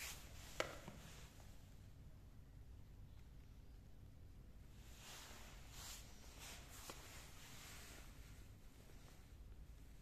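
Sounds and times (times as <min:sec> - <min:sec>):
soft rustling: 0:00.0 - 0:01.7, 0:04.7 - 0:10.0.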